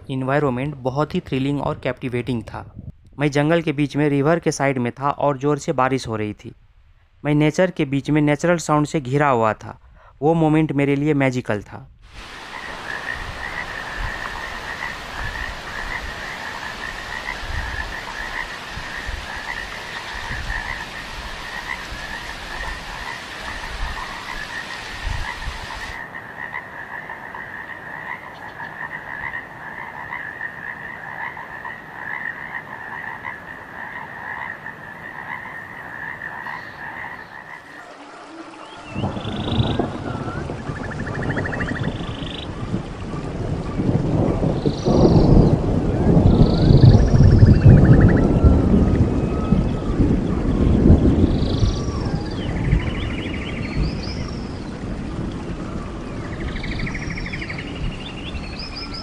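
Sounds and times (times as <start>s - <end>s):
wind: 0.0s - 59.0s
heavy rain: 12.0s - 59.0s
frogs calling in pulsing trill: 12.5s - 42.6s, 46.3s - 48.6s.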